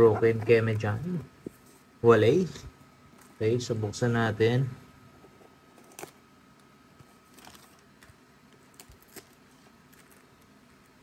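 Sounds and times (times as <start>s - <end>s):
package handling noise: 5.7s - 11.0s.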